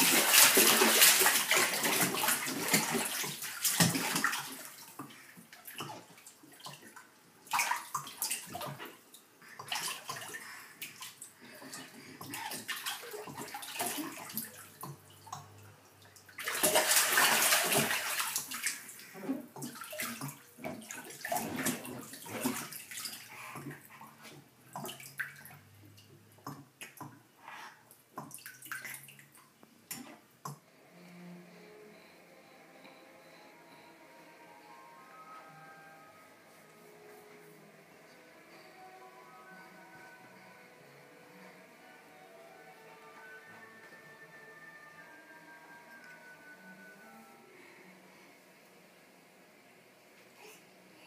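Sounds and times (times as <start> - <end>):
baby splashing bath water: 0.0 - 30.0.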